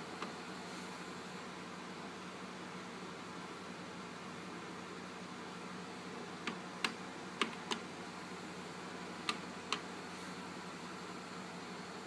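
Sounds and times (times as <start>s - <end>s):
steady low hiss: 0.0s - 12.0s
stereo buttons clicking: 9.2s - 9.9s.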